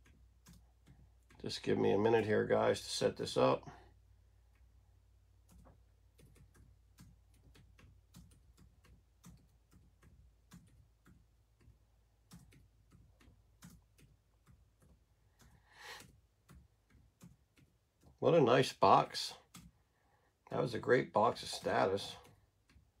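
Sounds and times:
typing on computer keyboard: 0.0s - 1.5s, 5.4s - 18.2s, 19.4s - 19.8s, 21.5s - 23.0s.

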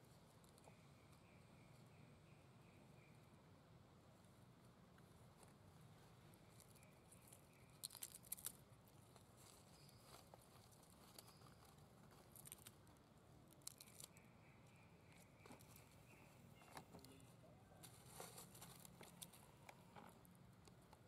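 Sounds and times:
dry leaf crackling and tearing: 7.2s - 8.6s, 12.1s - 12.8s, 13.5s - 14.2s.

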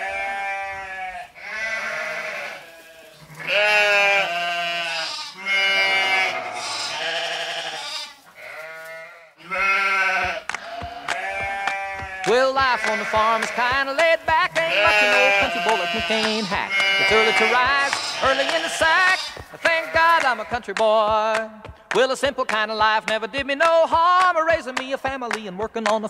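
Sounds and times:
sheep bleating: 0.0s - 20.8s.

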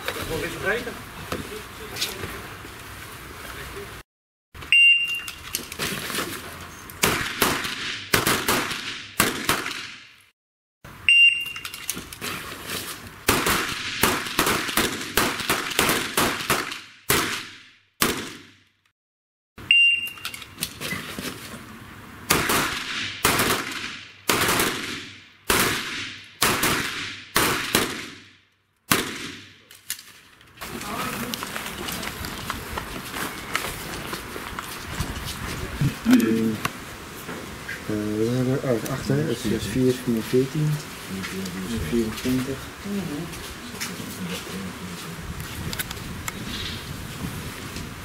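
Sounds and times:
short electronic beep: 4.7s - 5.4s, 11.1s - 11.8s, 19.7s - 20.4s
pistol shots with echo: 7.0s - 10.0s, 22.3s - 28.3s, 28.9s - 29.6s.

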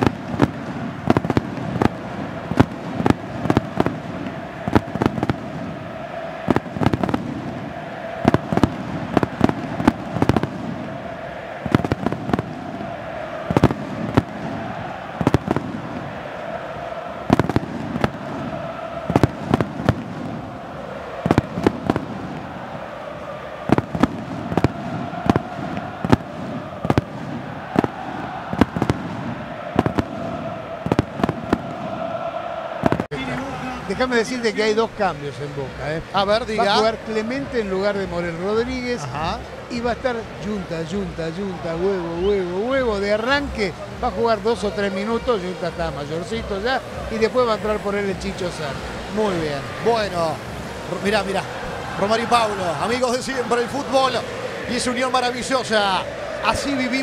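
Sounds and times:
fireworks bangs and cracks: 0.0s - 16.6s, 17.2s - 34.0s
large stadium crowd din: 0.0s - 57.0s.

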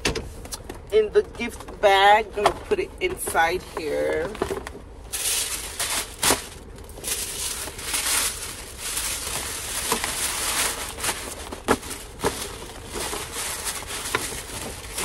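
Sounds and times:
tissue paper rustling: 5.1s - 15.0s.

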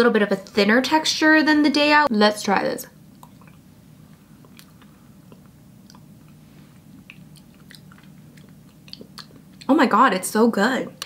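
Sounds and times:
low room hum: 0.0s - 11.0s
lip and tongue smacks: 4.4s - 9.7s.

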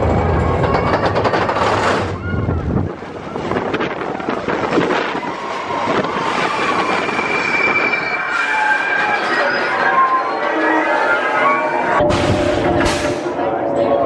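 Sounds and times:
roller coaster wheels rumbling: 0.0s - 14.0s
high steady squeal: 5.7s - 14.0s.

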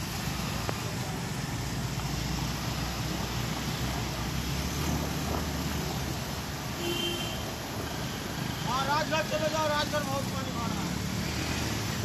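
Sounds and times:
water swishing around wheels: 0.0s - 12.0s
vehicle engines running: 7.5s - 12.0s.

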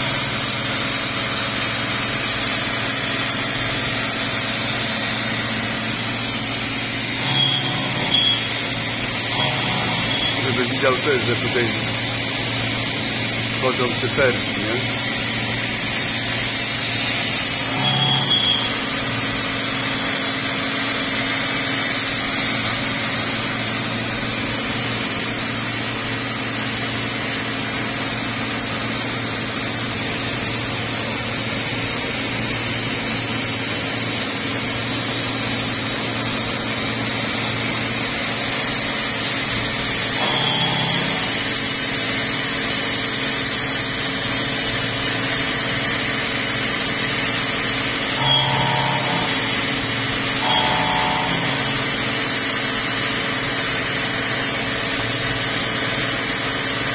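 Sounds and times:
machining center hum and hiss: 0.0s - 20.1s, 34.5s - 56.9s.

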